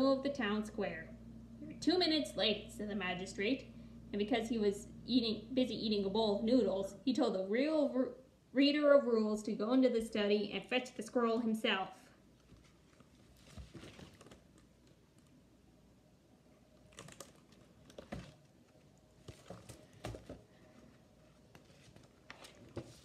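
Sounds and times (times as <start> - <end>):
soft taps and page rustles: 19.2 - 20.4, 21.4 - 23.0.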